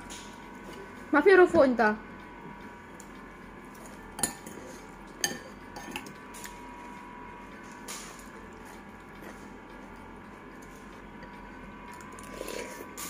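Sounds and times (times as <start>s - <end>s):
cutlery clinking on ceramic bowl: 5.2s - 6.1s.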